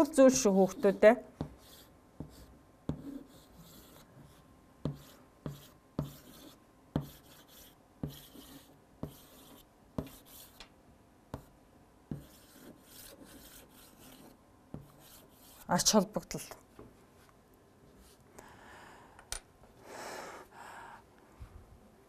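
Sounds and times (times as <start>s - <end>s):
chalk writing on chalkboard: 0.3s - 10.6s, 11.3s - 11.5s, 12.1s - 15.9s.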